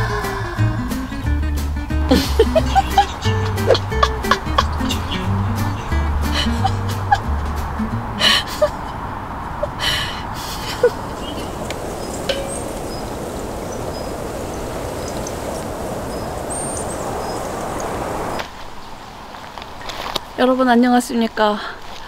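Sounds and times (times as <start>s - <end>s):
rushing outdoor ambience: 0.0s - 22.0s
light clicks: 15.0s - 15.4s.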